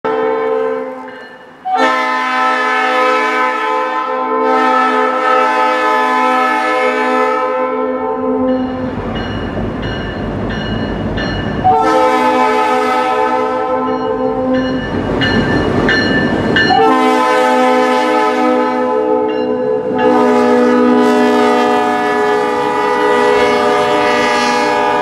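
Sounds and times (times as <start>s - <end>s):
locomotive air horn: 0.1s - 8.7s, 11.6s - 14.6s, 16.7s - 25.0s
locomotive bell ringing: 0.9s - 1.8s, 8.2s - 12.6s, 13.3s - 17.3s, 19.0s - 20.5s
diesel locomotive engine rumble: 8.1s - 25.0s.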